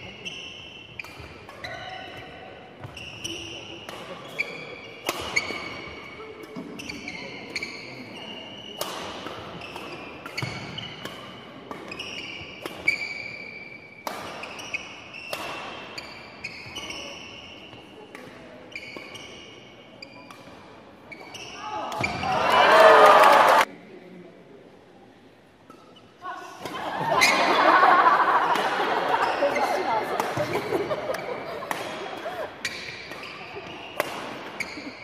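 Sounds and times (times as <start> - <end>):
sneaker squeaks: 0.0 - 22.6, 27.1 - 27.5, 28.5 - 35.0
racket striking shuttlecock: 5.0 - 6.8, 8.8 - 13.1, 14.0 - 17.0, 30.0 - 34.8.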